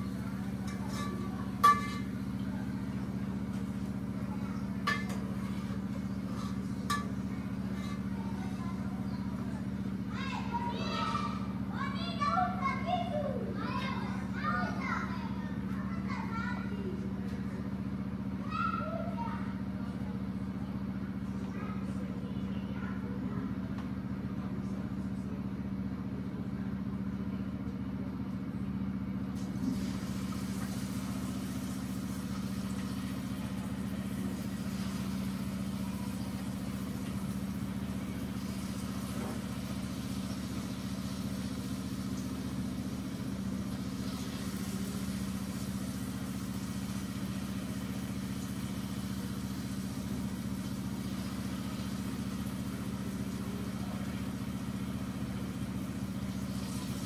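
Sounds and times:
food frying in hot oil: 0.0 - 11.0, 29.4 - 57.0.

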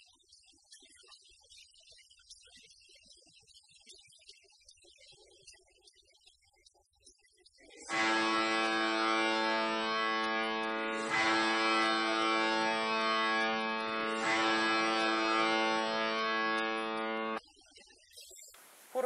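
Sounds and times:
plucked-string drone: 7.9 - 17.4.

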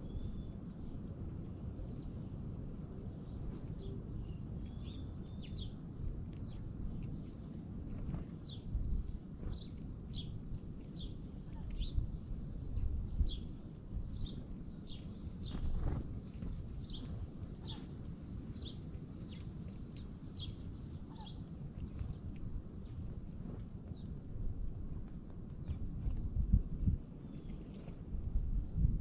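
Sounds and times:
songbirds chip calls: 0.0 - 24.3
steady low rumble: 0.0 - 29.0
wings fluttering: 7.9 - 8.5, 15.4 - 18.0.

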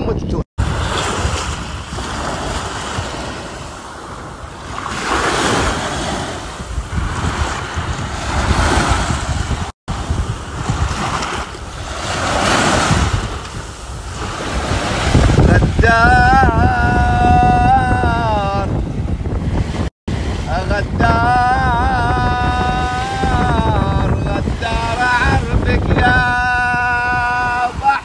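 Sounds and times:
wind buffeting microphone: 0.0 - 28.0
waves washing on sandy shore: 0.6 - 28.0.

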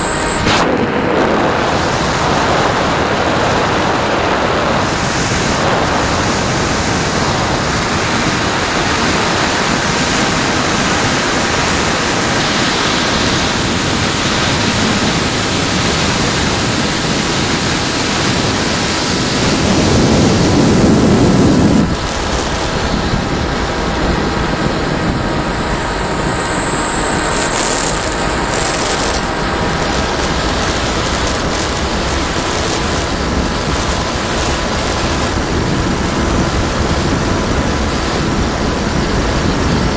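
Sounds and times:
airflow rushing over microphone: 0.0 - 39.9
electric motor whine: 0.0 - 39.9.

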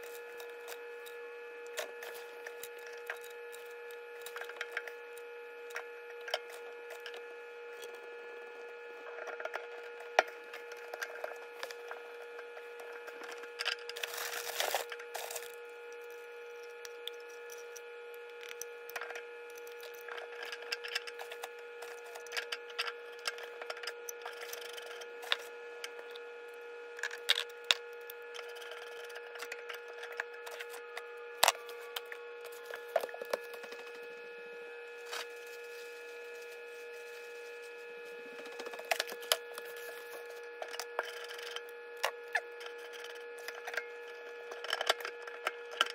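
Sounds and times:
steady hum: 0.0 - 45.9
scraping rustle: 34.9 - 40.4.

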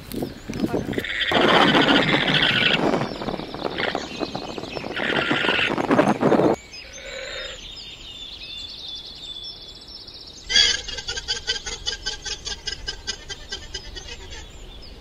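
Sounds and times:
small birds chirping: 0.0 - 15.0
llama pulsed calls: 0.4 - 7.6, 10.5 - 14.6
llama harsh call: 0.7 - 4.2, 4.8 - 6.1, 10.5 - 14.5.

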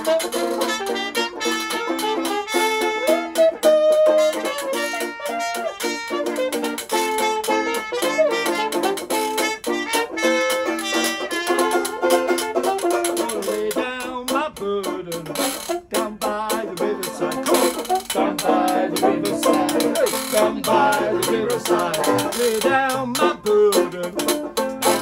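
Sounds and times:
muted trumpet melody: 0.0 - 13.5, 16.7 - 25.0
strummed banjo: 0.0 - 25.0.

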